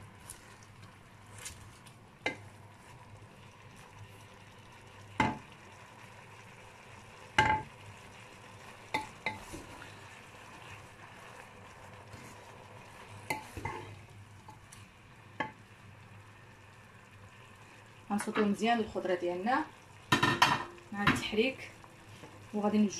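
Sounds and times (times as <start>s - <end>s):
wooden spoon stirring vegetables: 0.0s - 4.4s, 8.6s - 15.7s, 20.9s - 22.9s
faint sizzle: 0.0s - 22.9s
spoon knocking against pot: 5.2s - 5.4s, 20.1s - 21.3s.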